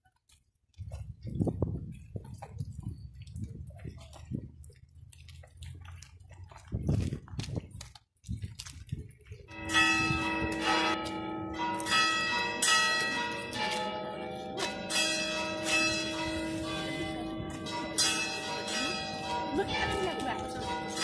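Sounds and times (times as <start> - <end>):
church bells ringing: 9.5 - 21.0.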